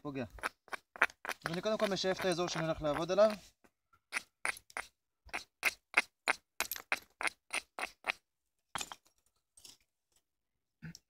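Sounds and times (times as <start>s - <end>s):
rasping scrapes of stone on flint: 0.3s - 3.5s, 4.1s - 8.2s.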